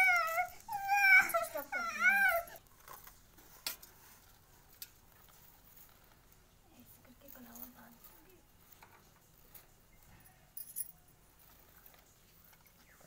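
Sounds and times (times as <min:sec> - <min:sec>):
young child whining and wailing: 0:00.0 - 0:02.6.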